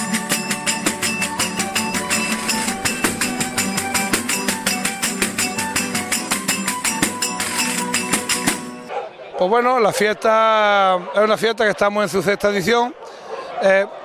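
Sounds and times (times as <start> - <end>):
acoustic guitars strummed fast: 0.0 - 8.9
jingle frame drum: 0.0 - 8.9.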